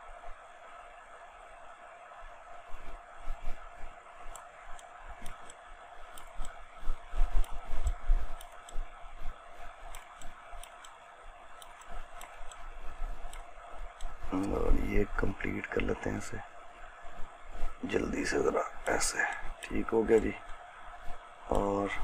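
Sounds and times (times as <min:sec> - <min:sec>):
steady hum: 0:00.0 - 0:22.0
computer mouse and keyboard clicks: 0:04.2 - 0:14.6, 0:18.9 - 0:20.6.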